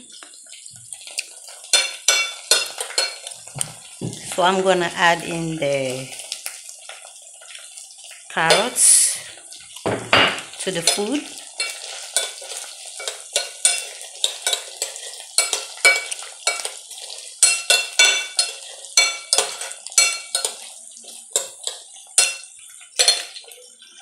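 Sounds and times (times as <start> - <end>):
vegetables sizzling in oil: 0.0 - 24.0
metal spoon scraping a pot: 10.8 - 23.6.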